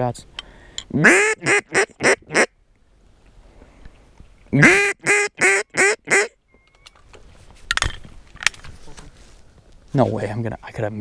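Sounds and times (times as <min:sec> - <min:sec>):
duck call quacking: 0:01.0 - 0:02.5, 0:04.6 - 0:06.4.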